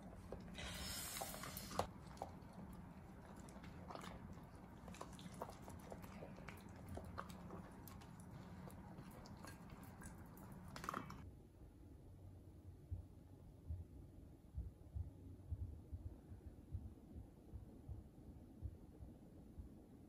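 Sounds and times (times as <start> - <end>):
dog crunching dry kibble: 0.0 - 11.2.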